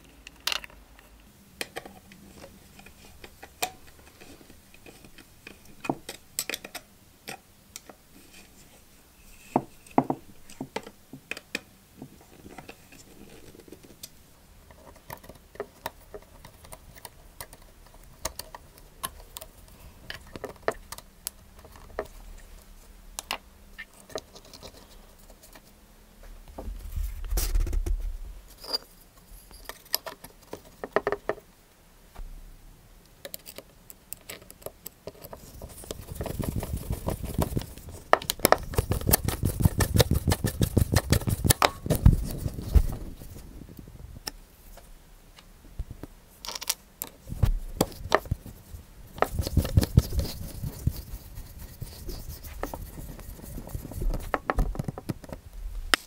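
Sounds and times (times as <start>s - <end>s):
rapid scraping and knocking: 35.3s - 43.5s, 49.2s - 55.4s.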